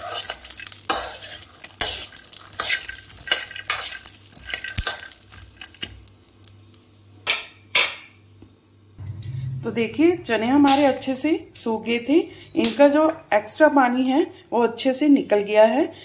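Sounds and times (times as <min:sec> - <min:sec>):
peanuts scraping in metal pan: 0:00.0 - 0:05.0
light sizzle: 0:00.0 - 0:14.2
sharp knock: 0:09.0 - 0:11.2.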